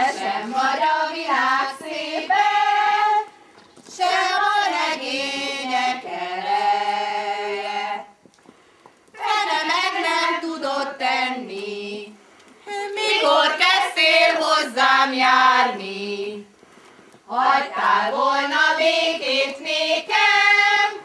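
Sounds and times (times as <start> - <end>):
women singing unaccompanied: 0.0 - 8.2, 9.1 - 16.6, 17.3 - 21.0.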